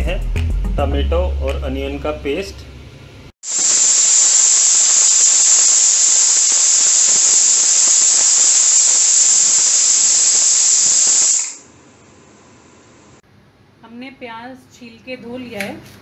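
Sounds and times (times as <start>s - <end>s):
pressure cooker steam hiss: 3.4s - 11.7s.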